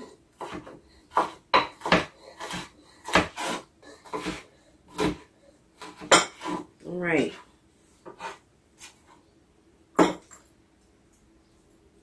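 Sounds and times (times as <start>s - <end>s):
knife chopping on wooden board: 0.0s - 5.2s, 5.8s - 6.7s.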